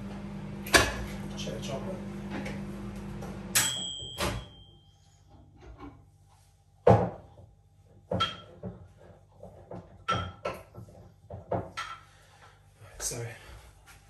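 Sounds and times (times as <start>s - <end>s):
microwave humming: 0.0s - 4.8s
ringing tone: 3.6s - 5.1s.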